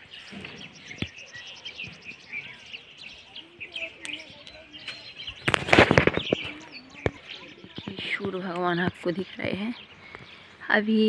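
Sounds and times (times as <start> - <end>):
small birds chirping: 0.0 - 11.0
rustling on microphone: 3.0 - 10.4.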